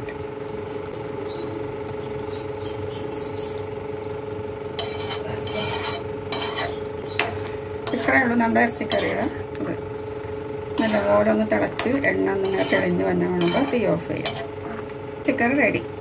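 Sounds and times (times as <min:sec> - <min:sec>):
steady hum: 0:00.0 - 0:16.0
spoon stirring in a pan: 0:04.7 - 0:14.9.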